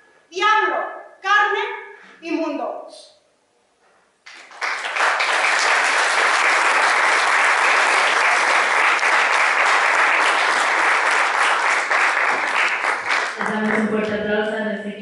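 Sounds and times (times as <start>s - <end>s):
audience applauding: 4.2s - 14.0s.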